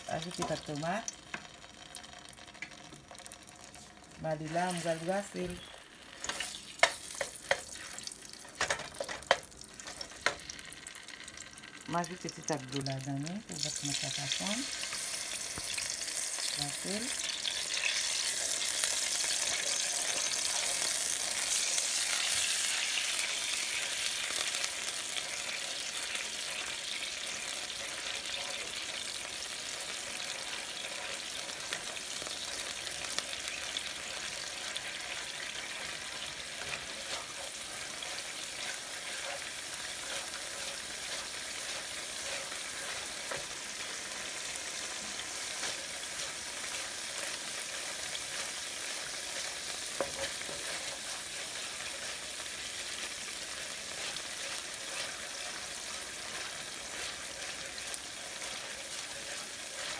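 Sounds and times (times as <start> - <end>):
paste sizzling in hot oil: 0.0 - 59.9
wooden spoon scraping pan: 34.1 - 59.9.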